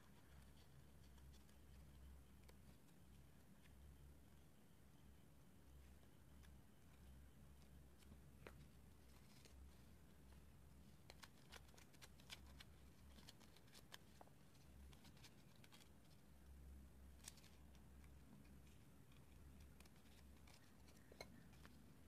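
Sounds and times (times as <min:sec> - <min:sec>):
low steady hum: 0:00.0 - 0:22.0
paper rustling and folding: 0:06.9 - 0:16.2.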